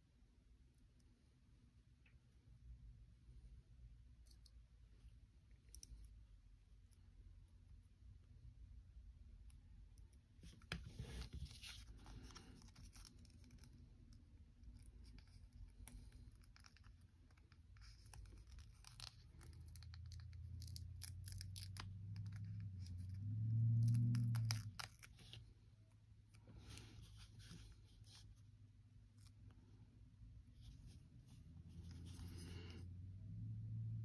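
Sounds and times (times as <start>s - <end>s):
low hum: 21.8s - 34.0s.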